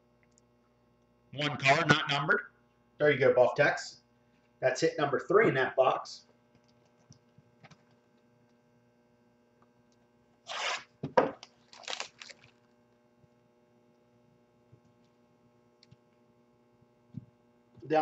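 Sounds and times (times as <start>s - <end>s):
low mains hum: 0.0s - 18.0s
packaging being torn: 10.5s - 12.6s.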